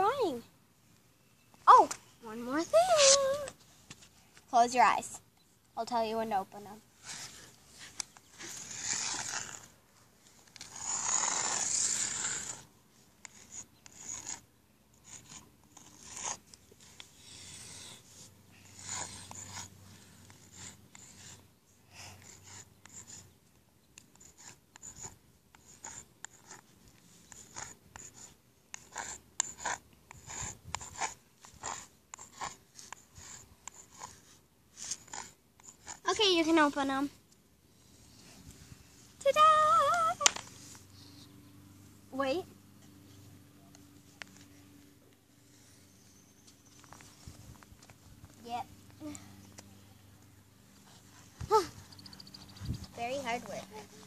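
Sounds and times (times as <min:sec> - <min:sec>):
chalk scraping on asphalt: 0:02.4 - 0:05.1, 0:07.0 - 0:23.3, 0:24.0 - 0:37.1, 0:50.7 - 0:54.0.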